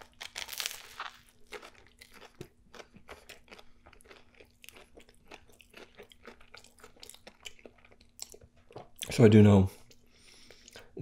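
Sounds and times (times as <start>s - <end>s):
chewing crunchy sandwich: 0.0s - 9.1s.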